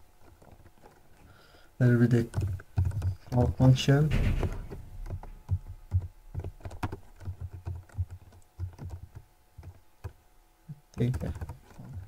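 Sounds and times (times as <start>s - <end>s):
computer keyboard typing: 2.1s - 3.7s, 4.4s - 10.2s, 10.8s - 12.0s.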